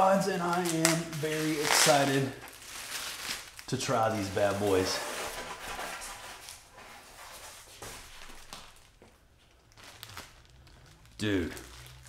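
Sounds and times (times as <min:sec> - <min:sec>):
plastic wrapping rustling: 0:00.0 - 0:12.0.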